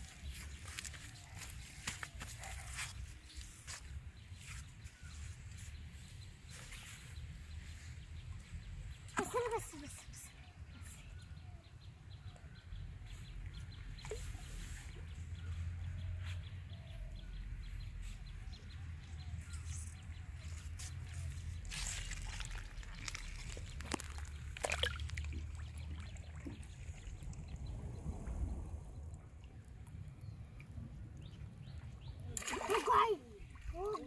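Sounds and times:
low rumble: 0:26.1 - 0:31.8.

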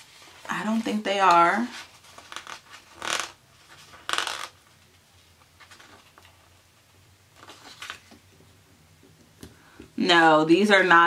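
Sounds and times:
paper sheets rustling: 0:07.4 - 0:08.2.

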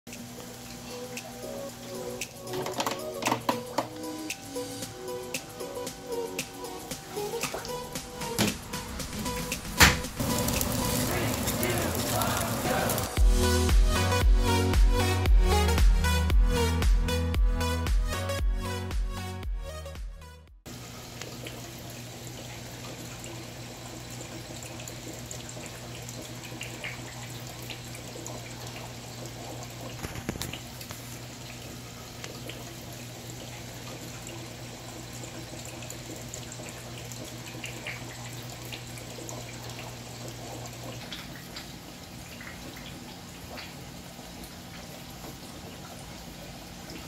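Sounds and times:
water trickling and splashing: 0:00.1 - 0:13.2, 0:20.7 - 0:47.0
electronic music: 0:00.9 - 0:20.6.

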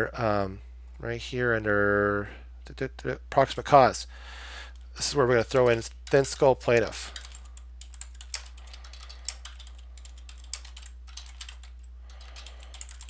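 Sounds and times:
steady low hum: 0:00.0 - 0:13.0
computer keyboard typing: 0:05.4 - 0:13.0.

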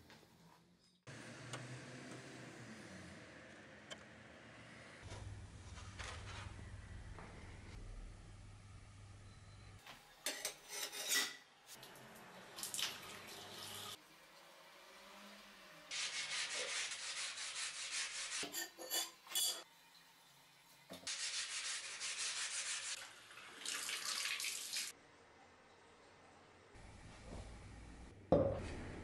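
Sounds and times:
scrubbing metal blade: 0:10.3 - 0:11.4, 0:16.5 - 0:19.6.

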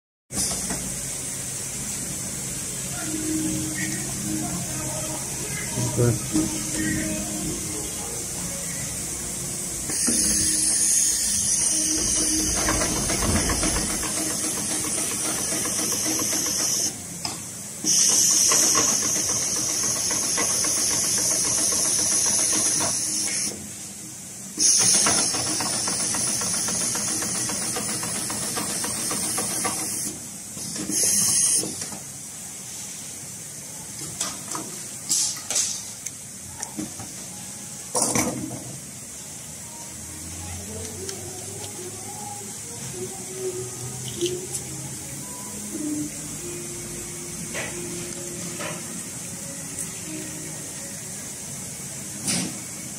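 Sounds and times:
sewing machine stitching: 0:11.7 - 0:17.0, 0:17.9 - 0:23.5, 0:24.6 - 0:30.1.

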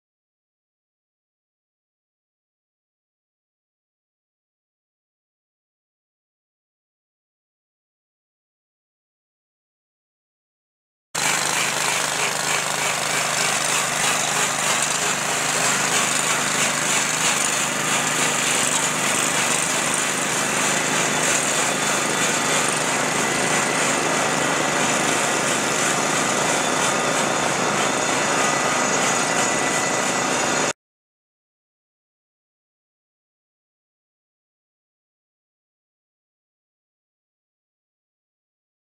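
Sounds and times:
joint cleaner with wire brushes: 0:11.2 - 0:30.7.

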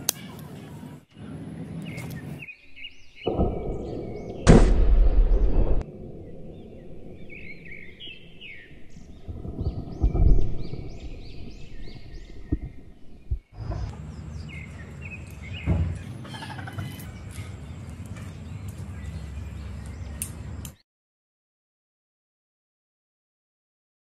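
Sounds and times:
small birds chirping: 0:00.0 - 0:04.5, 0:05.2 - 0:20.8
low rumble: 0:01.2 - 0:14.8
soft low thump: 0:12.3 - 0:13.9.

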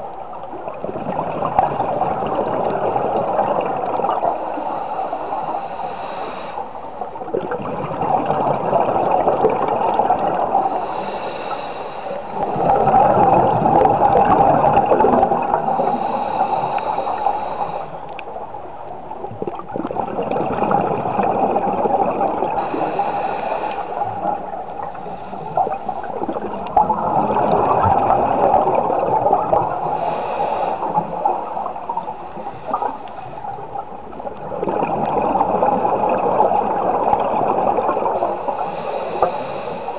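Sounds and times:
exhaled bubbles gurgling: 0:00.0 - 0:39.9
regulator inhalation hiss: 0:04.4 - 0:06.8, 0:10.6 - 0:12.7, 0:15.6 - 0:18.0, 0:22.5 - 0:26.2, 0:29.7 - 0:33.2, 0:38.3 - 0:39.9.

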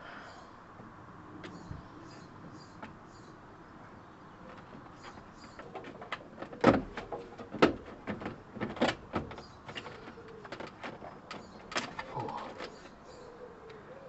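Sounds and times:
small birds chirping: 0:00.0 - 0:06.3, 0:09.2 - 0:14.0.

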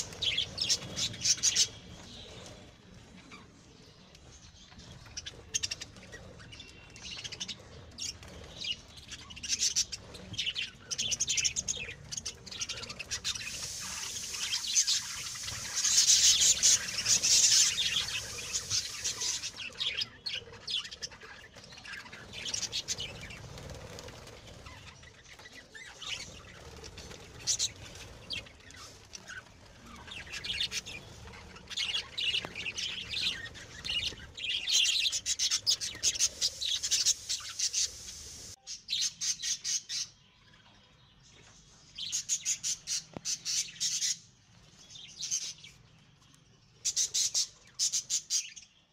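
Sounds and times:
finches chirping: 0:05.0 - 0:39.6.

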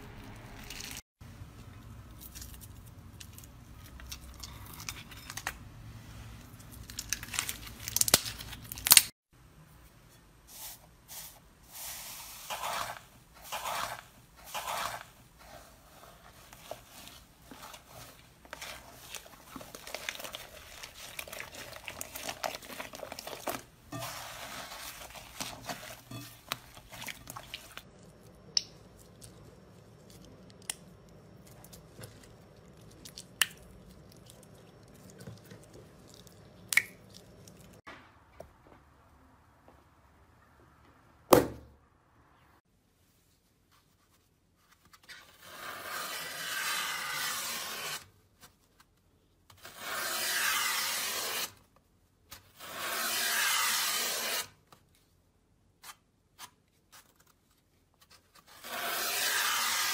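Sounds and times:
slime squelching and crackling: 0:15.4 - 0:37.8.

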